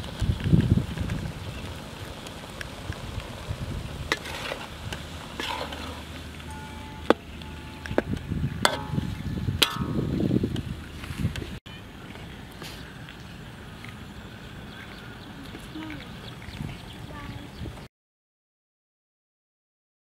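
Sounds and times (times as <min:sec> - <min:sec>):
frying sizzle: 0:00.0 - 0:11.1
spatula scraping a wok: 0:04.0 - 0:08.0, 0:08.6 - 0:10.0.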